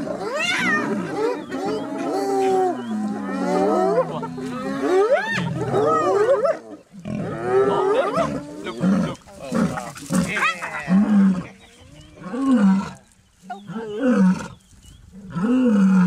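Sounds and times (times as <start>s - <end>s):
hyenas yelping and whooping: 0.0s - 14.6s
lioness growling low: 0.0s - 14.6s.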